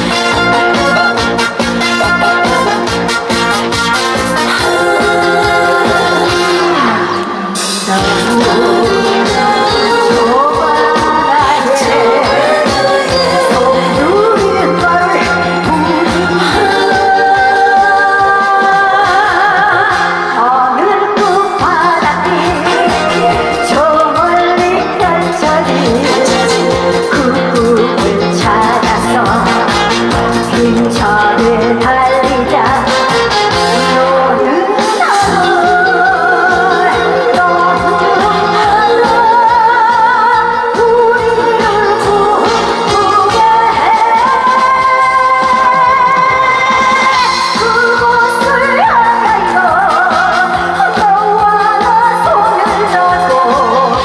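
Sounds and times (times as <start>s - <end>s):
amplified backing music with beat: 0.0s - 54.0s
woman singing into a microphone: 4.0s - 54.0s.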